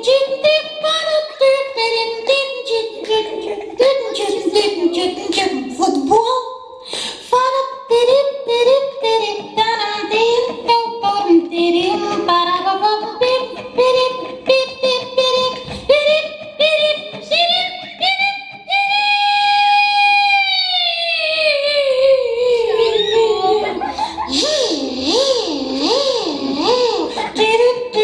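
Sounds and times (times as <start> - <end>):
woman singing: 0.0 - 6.5, 7.1 - 28.0
acoustic guitar: 8.6 - 18.8.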